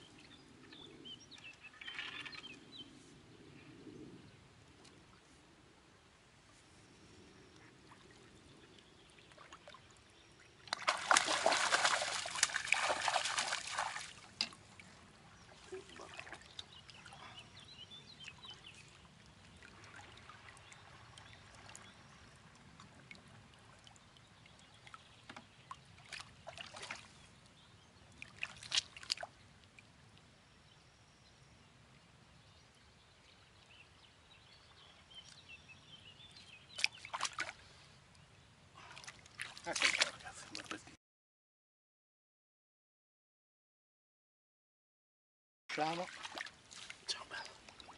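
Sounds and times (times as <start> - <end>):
fish thrashing and splashing: 10.7 - 14.2
water sloshing in net: 10.7 - 14.5, 36.8 - 37.6, 45.7 - 47.9.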